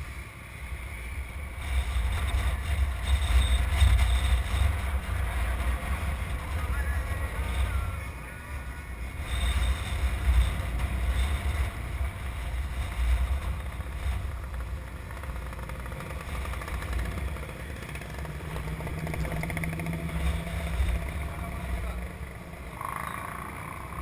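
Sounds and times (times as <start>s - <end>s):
motorcycles riding past: 13.7s - 24.0s.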